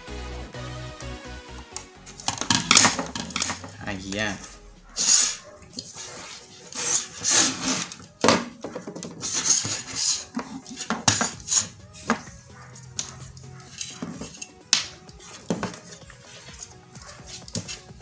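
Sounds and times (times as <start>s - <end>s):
small parts rubbing and scraping: 2.1s - 4.3s, 4.9s - 18.0s.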